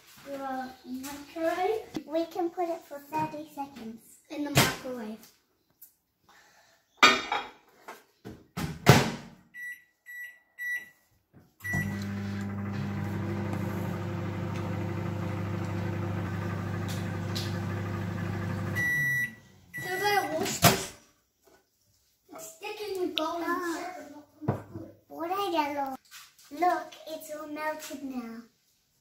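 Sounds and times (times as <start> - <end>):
microwave keypad beeps: 9.6 - 10.9, 11.6 - 12.3, 18.8 - 20.2
microwave oven humming: 11.7 - 20.3
long beep: 18.8 - 20.0.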